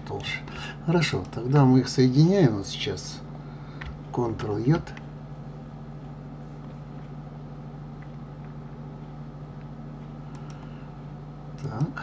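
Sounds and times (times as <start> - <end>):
low background hum: 0.0 - 12.0
faint clicks: 9.6 - 10.7.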